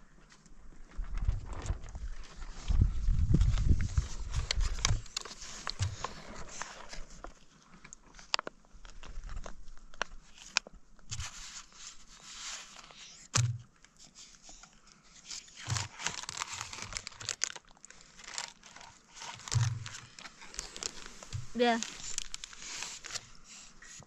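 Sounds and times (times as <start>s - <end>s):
foil pouch crinkling: 14.2s - 24.0s.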